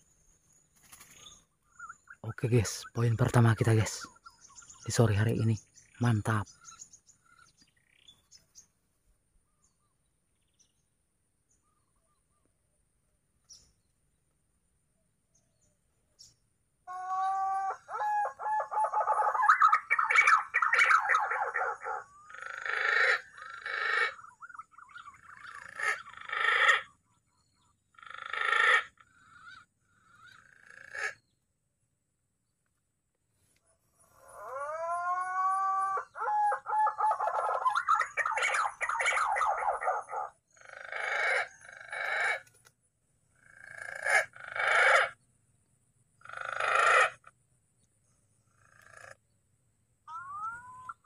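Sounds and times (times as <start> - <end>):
green pigeon calls: 16.9 - 27.0, 34.2 - 42.6, 50.0 - 51.0.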